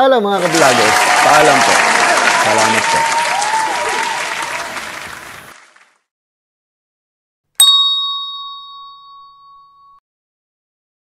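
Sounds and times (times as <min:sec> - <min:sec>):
applause: 0:00.4 - 0:06.1
hand bell ding: 0:07.6 - 0:10.0.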